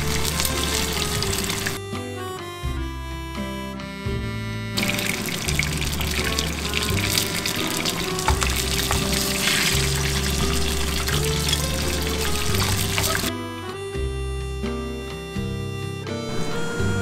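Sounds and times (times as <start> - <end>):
hot oil sizzling and spitting: 0.0 - 1.8, 4.8 - 13.3
background music: 0.0 - 17.0.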